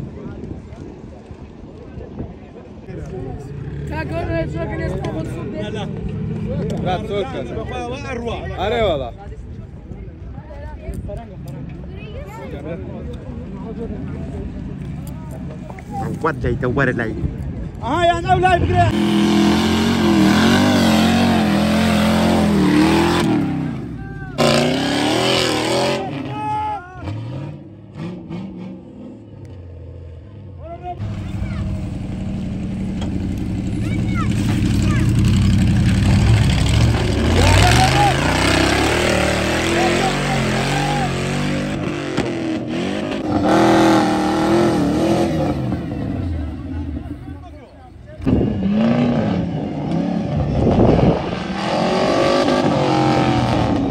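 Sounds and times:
truck engines revving hard: 0:18.8 - 0:30.4, 0:31.0 - 0:47.5, 0:48.2 - 0:53.9.

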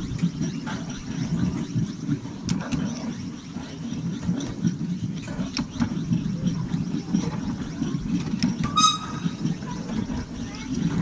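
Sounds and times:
miniature steam train running: 0:00.0 - 0:11.0
wheels clicking over rails: 0:00.0 - 0:11.0
short high tone: 0:08.6 - 0:09.4.

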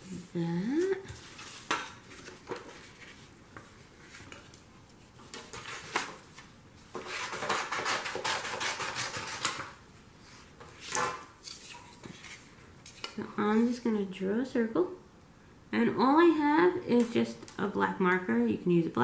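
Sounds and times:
paper sliding and rustling: 0:01.2 - 0:04.4.

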